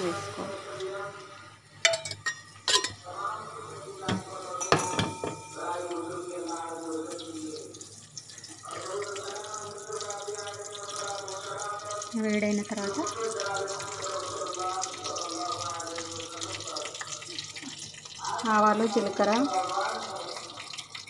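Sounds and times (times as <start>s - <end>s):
metal spoon clinking on pan: 1.8s - 3.0s, 4.6s - 6.1s
background voices: 2.8s - 20.9s.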